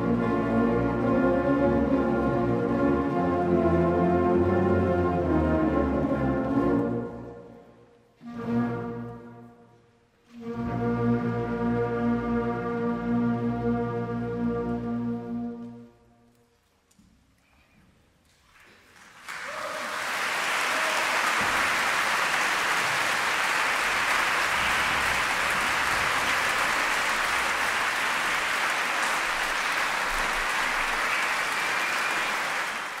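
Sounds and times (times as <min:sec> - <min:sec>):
audience applauding: 0:18.5 - 0:33.0.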